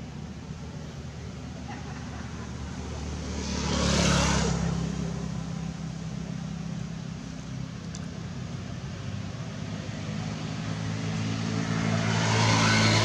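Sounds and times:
low engine hum: 0.0 - 13.0
vehicle passing: 2.4 - 5.8, 9.6 - 13.0.

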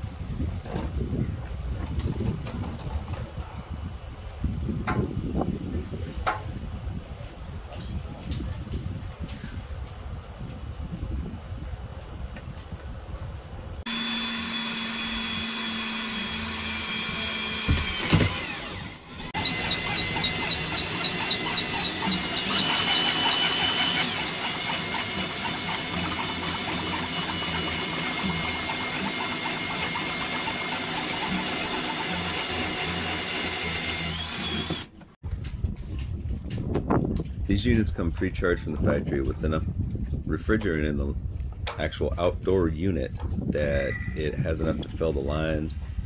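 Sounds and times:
power drill whining: 13.8 - 35.2.

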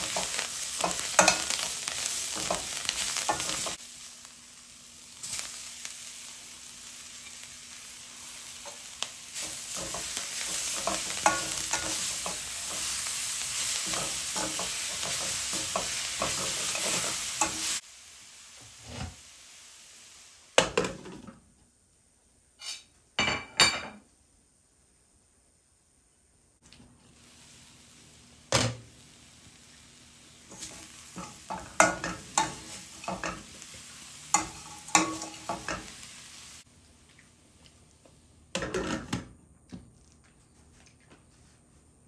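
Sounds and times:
spoon scraping and knocking pan: 0.0 - 3.8, 8.6 - 17.8, 30.5 - 33.6, 34.3 - 36.0
food sizzling in a pan: 0.0 - 38.8.

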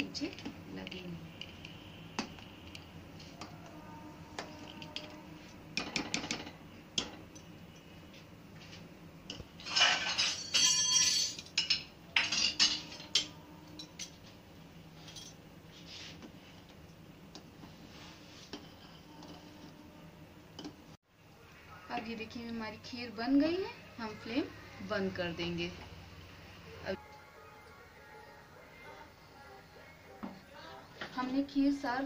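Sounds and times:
metal spoon scraping a pot: 18.4 - 19.8.

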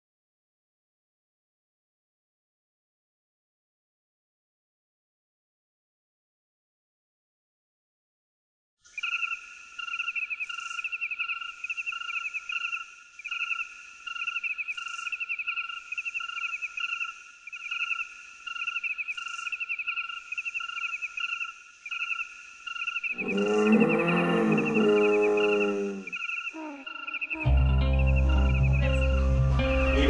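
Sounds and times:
insects chirping: 8.8 - 30.0.

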